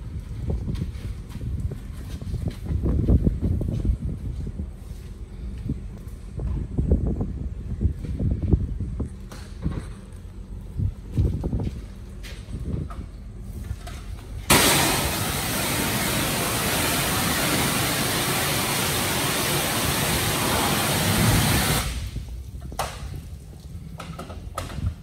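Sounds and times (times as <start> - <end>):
pressure washer spraying water: 14.5 - 22.2.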